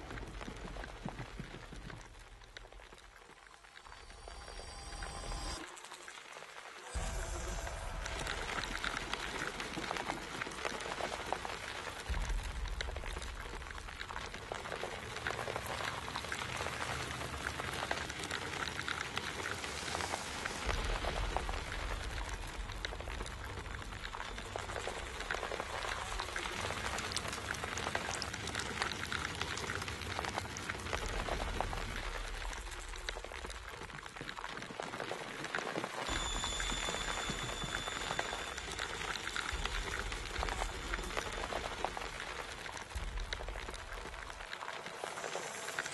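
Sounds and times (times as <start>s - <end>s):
low rumble: 0.0s - 5.6s, 6.9s - 34.5s, 36.1s - 45.9s
maggots wet crackling: 0.0s - 45.9s.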